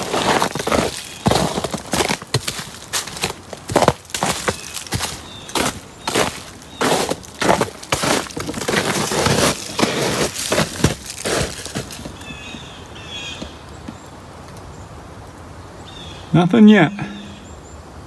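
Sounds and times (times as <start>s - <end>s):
footsteps crunching through snow: 0.0s - 12.8s
faint high chirps: 16.8s - 17.6s.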